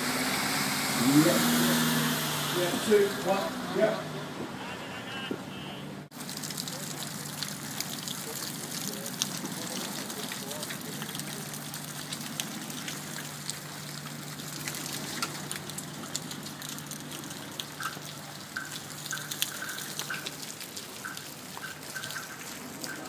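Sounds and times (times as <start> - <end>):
steady rain falling: 0.0 - 4.2, 6.0 - 23.0
water trickling: 6.1 - 23.0.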